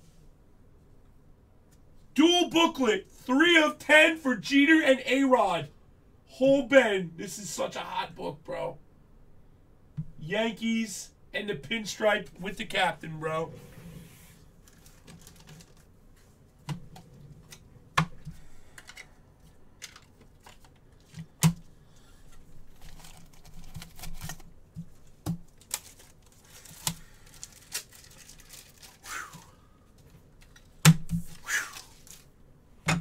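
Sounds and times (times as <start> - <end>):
packaging rustling and crinkling: 14.4 - 16.3, 22.4 - 32.3.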